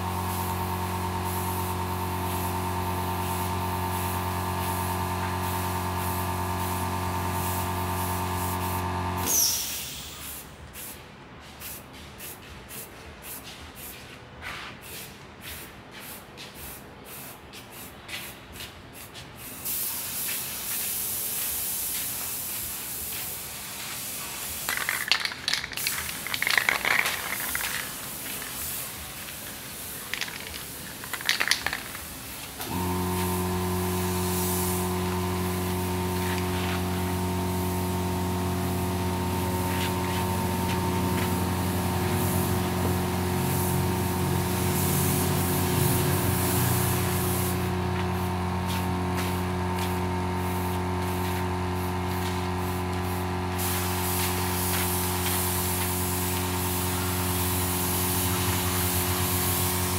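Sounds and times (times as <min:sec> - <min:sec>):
spray can hissing: 0:01.2 - 0:11.0, 0:11.6 - 0:59.9
steady motor hum: 0:32.7 - 0:59.9.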